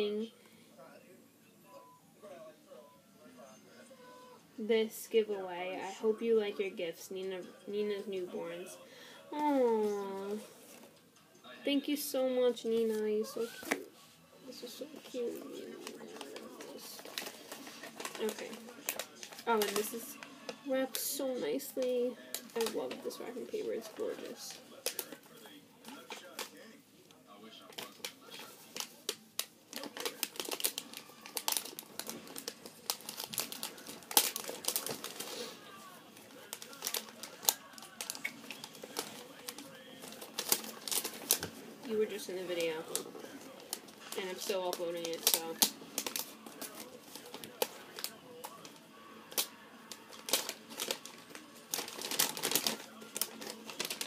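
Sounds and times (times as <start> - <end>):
wrapping paper tearing and crumpling: 12.6 - 26.6, 27.6 - 54.0.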